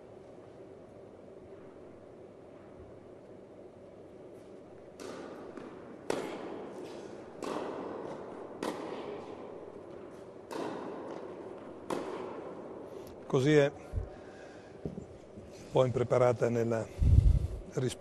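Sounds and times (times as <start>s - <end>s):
tennis ball hit by rackets: 4.9s - 12.7s
ball bouncing on hard court: 5.0s - 12.6s.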